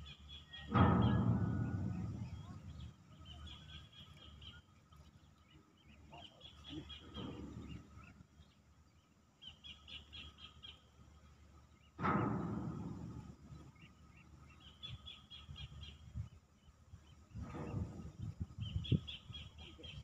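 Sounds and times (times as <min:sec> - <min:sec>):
bird chirping: 0:00.0 - 0:10.9, 0:18.6 - 0:20.0
knocks: 0:00.7 - 0:03.6.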